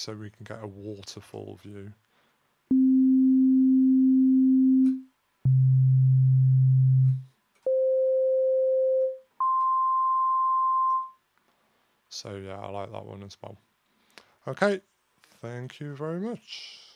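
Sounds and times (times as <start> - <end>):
held sine-wave tones: 2.7 - 11.1.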